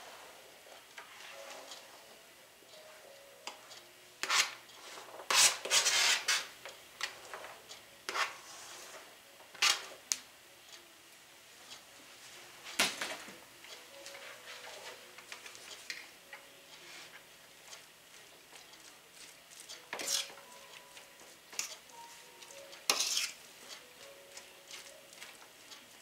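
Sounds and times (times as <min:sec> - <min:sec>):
fork scraping plastic mat: 0:04.2 - 0:06.5, 0:08.1 - 0:09.0, 0:18.5 - 0:20.4, 0:22.9 - 0:23.8.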